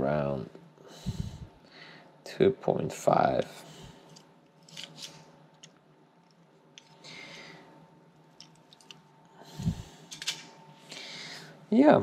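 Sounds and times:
soft breath: 0.8s - 2.2s, 6.9s - 7.9s, 9.3s - 10.2s, 10.8s - 11.6s.

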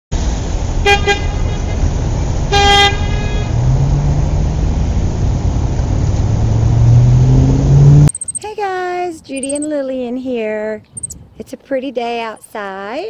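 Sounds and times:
car engine rumbling: 0.2s - 8.3s
car horn honking: 2.5s - 3.6s.

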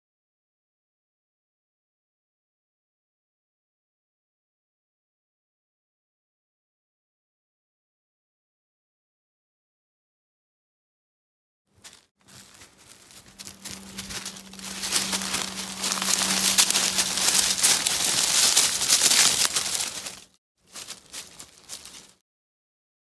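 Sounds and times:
dry leaves crackling and rustling: 11.8s - 22.2s
faint low hum: 12.3s - 18.9s.

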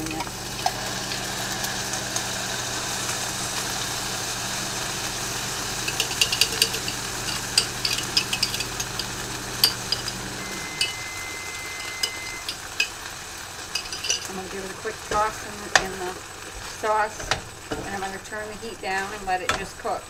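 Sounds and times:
chicken sizzling in frying pan: 0.0s - 20.0s
microwave oven humming: 0.0s - 20.0s
sauce pouring: 2.8s - 17.7s
microwave beep: 9.7s - 12.8s.

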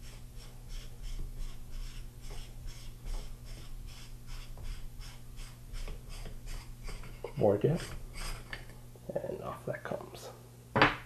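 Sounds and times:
threads rasping: 0.0s - 8.8s.

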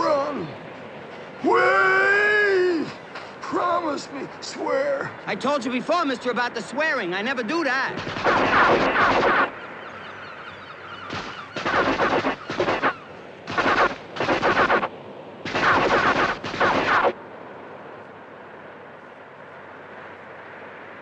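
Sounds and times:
automatic gunfire bursts: 8.0s - 9.5s, 11.1s - 17.2s.

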